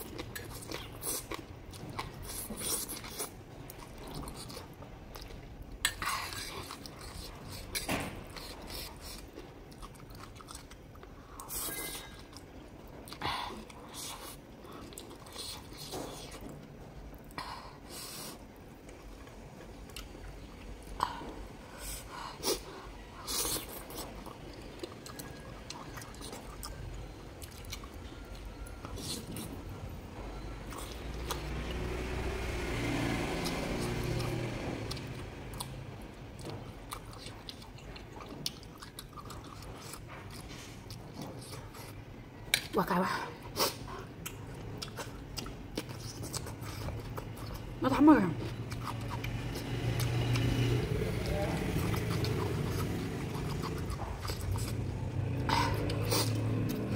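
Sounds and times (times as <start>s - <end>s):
person chewing noodles: 0.0s - 42.7s, 43.4s - 56.9s.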